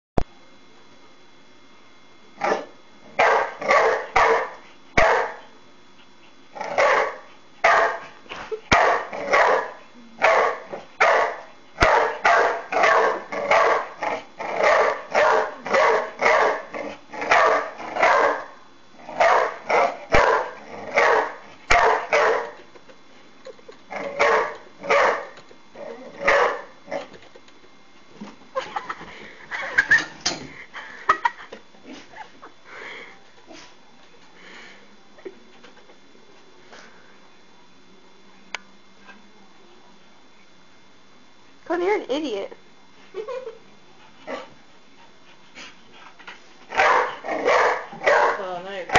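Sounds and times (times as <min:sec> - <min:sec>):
dog barking: 0:02.4 - 0:05.4, 0:06.8 - 0:08.1, 0:08.7 - 0:14.0, 0:14.6 - 0:16.7, 0:17.3 - 0:18.6, 0:19.2 - 0:22.6, 0:24.2 - 0:25.3, 0:26.2 - 0:26.7, 0:46.8 - 0:48.5.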